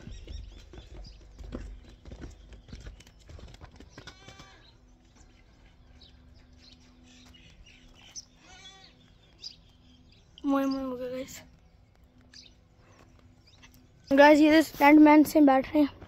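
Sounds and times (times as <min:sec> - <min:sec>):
faint steady hum: 0:00.0 - 0:16.0
distant goat or sheep bleating: 0:04.0 - 0:04.8, 0:08.4 - 0:09.0.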